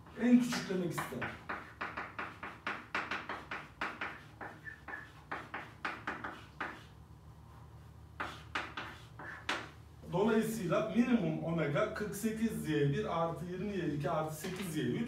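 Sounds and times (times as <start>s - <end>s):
chalk tapping and scraping on chalkboard: 0.0s - 7.0s, 7.8s - 9.8s, 14.3s - 14.8s.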